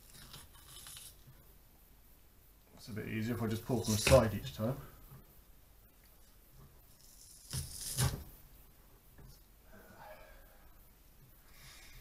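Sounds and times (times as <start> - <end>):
fish skin tearing: 0.0 - 1.2.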